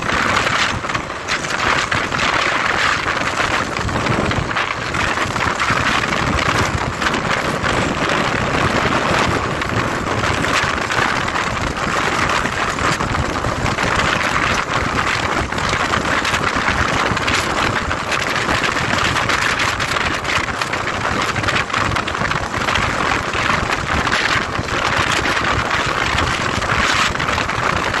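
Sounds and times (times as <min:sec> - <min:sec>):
motorcycle engine running: 0:00.0 - 0:28.0
wind rushing over microphone: 0:00.0 - 0:28.0.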